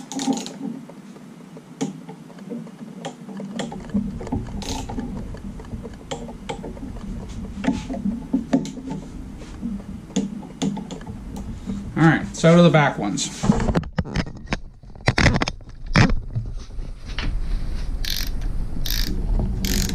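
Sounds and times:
ratcheting torque wrench clicking: 0:04.6 - 0:04.9, 0:18.0 - 0:19.9.

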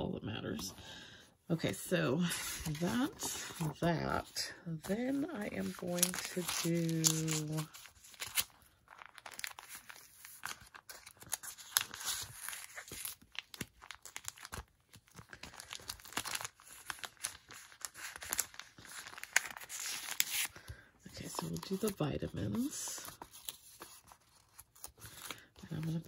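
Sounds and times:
paper and plastic crinkling: 0:02.3 - 0:26.0.

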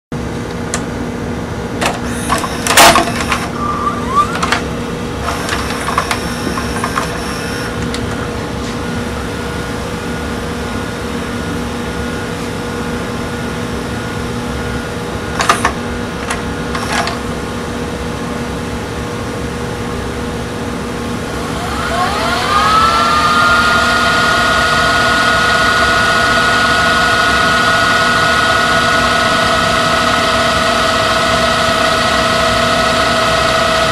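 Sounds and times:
steady mechanism hum: 0:00.2 - 0:33.9
reel motor whine: 0:02.0 - 0:04.6, 0:05.2 - 0:08.0, 0:16.7 - 0:17.4, 0:21.1 - 0:33.9.

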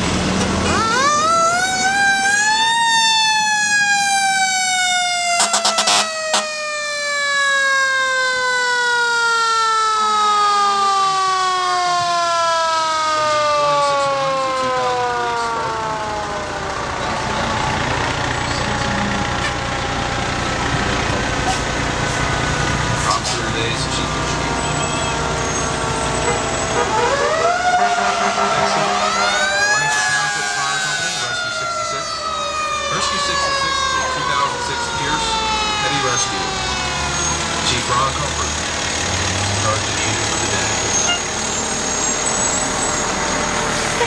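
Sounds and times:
fire truck engines running: 0:00.0 - 0:44.0
mechanical siren wailing: 0:00.6 - 0:20.5, 0:23.6 - 0:37.8.

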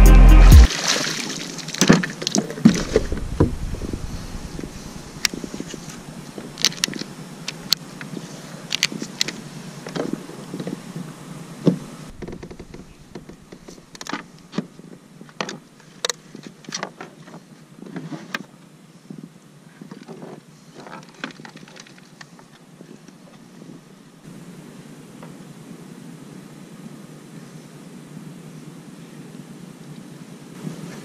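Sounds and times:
light steady hiss: 0:00.7 - 0:31.0.

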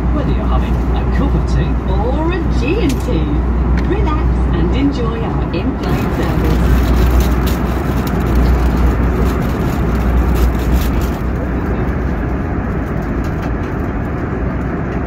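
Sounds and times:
airliner cabin engine roar: 0:00.0 - 0:15.0.

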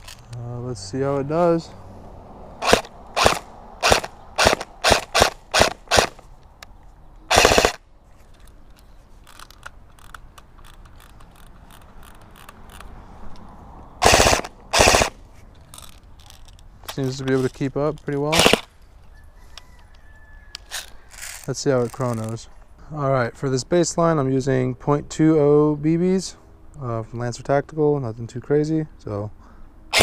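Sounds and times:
airsoft gun full-auto bursts: 0:02.6 - 0:06.2, 0:07.3 - 0:07.8, 0:14.0 - 0:15.2, 0:18.3 - 0:18.7
airsoft gun single shots: 0:02.6 - 0:06.2, 0:14.0 - 0:15.2, 0:18.3 - 0:18.7.

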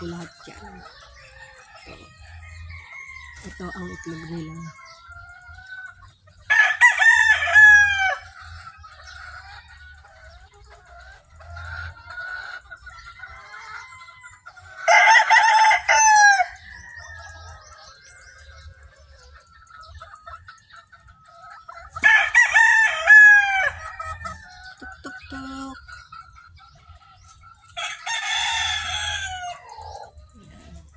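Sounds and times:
hens clucking: 0:00.0 - 0:30.9
rooster crowing: 0:06.5 - 0:08.2, 0:14.8 - 0:17.3, 0:22.0 - 0:24.6, 0:27.8 - 0:30.1.

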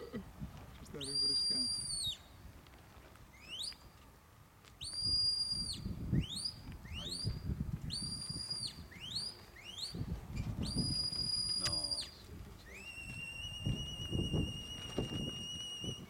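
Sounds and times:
shepherd's whistle commands: 0:01.0 - 0:02.3, 0:04.8 - 0:16.0.

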